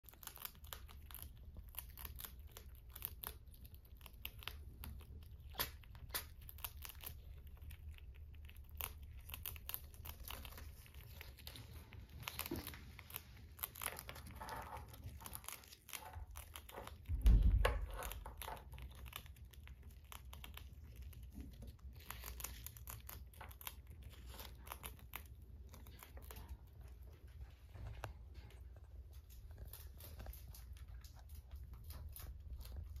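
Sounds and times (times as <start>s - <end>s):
rats nibbling and crunching: 0.0s - 33.0s
loud low thump: 17.1s - 17.9s.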